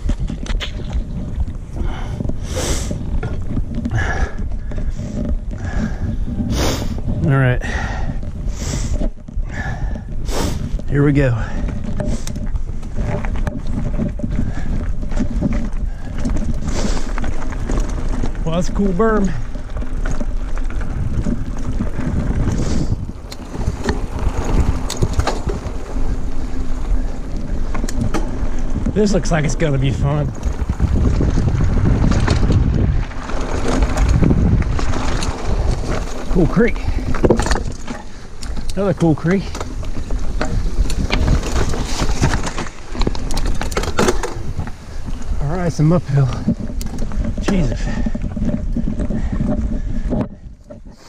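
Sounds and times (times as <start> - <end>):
bike clicks and rattles: 0.0 - 51.0
bike rolling over dirt trail: 0.0 - 51.0
low microphone rumble: 0.0 - 51.0
person breathing heavily: 1.7 - 3.0, 3.9 - 10.8, 11.4 - 12.4, 15.8 - 17.2, 47.8 - 51.0.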